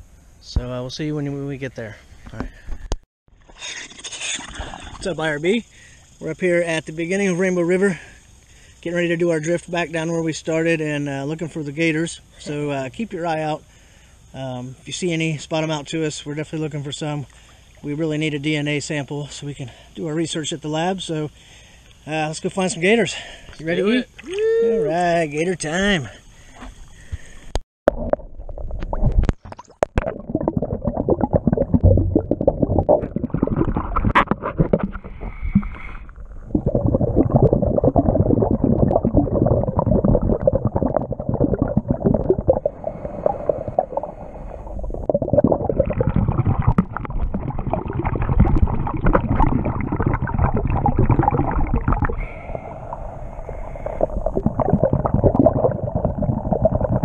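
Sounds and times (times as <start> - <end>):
underwater rushing and gurgling: 27.9 - 57.0.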